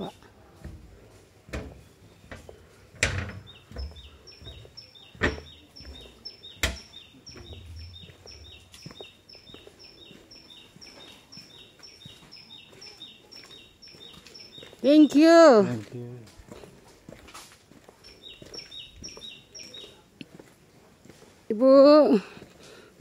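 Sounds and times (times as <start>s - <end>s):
bird two-note chirp: 5.9s - 9.0s.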